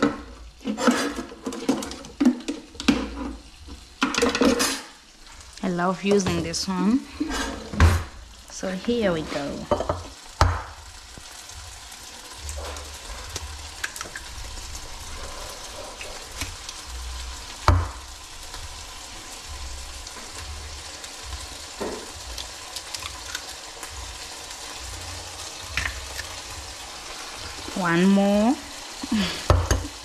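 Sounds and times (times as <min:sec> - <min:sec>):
frying sizzle with crackles: 0:00.0 - 0:30.0
egg cracking: 0:13.2 - 0:16.8, 0:21.0 - 0:24.8, 0:25.6 - 0:26.7.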